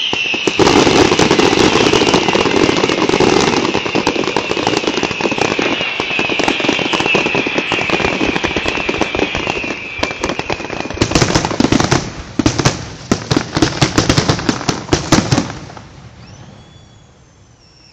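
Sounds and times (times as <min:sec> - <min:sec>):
high whistling tone: 0:00.0 - 0:11.0, 0:16.2 - 0:17.9
fireworks bangs and crackles: 0:00.0 - 0:17.9
fireworks barrage: 0:00.0 - 0:17.9.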